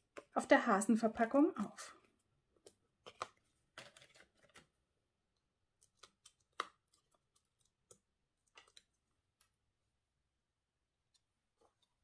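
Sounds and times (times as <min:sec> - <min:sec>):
paper rustling: 0:02.6 - 0:04.8.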